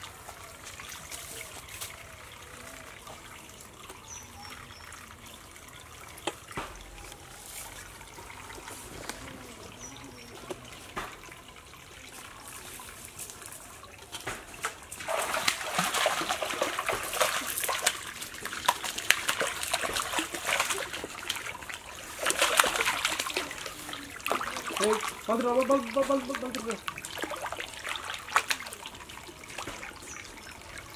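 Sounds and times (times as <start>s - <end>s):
fish thrashing water splashing: 14.2s - 30.1s.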